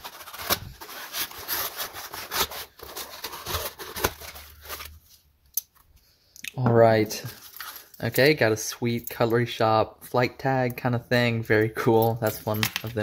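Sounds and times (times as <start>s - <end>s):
knife cutting package: 0.0s - 5.0s.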